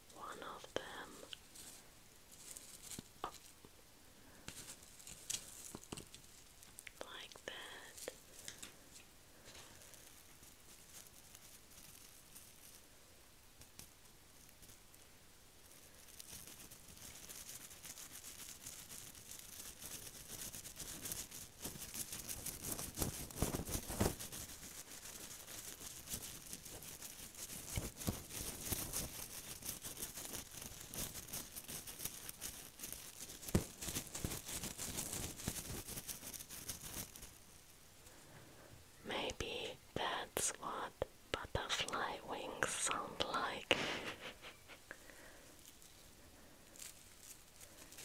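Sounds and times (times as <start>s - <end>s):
foil crinkling: 15.8s - 37.5s, 43.8s - 48.0s.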